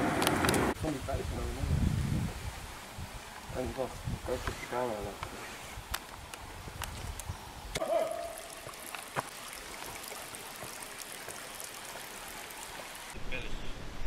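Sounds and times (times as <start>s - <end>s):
stream trickling over rocks: 0.0s - 13.2s.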